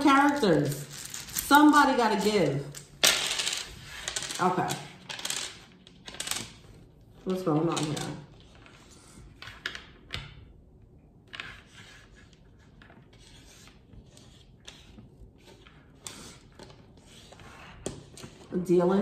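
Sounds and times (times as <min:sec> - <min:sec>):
wooden tiles clicking on table: 0:02.7 - 0:06.6
tiles sliding scrapes: 0:03.2 - 0:05.6, 0:11.3 - 0:18.5.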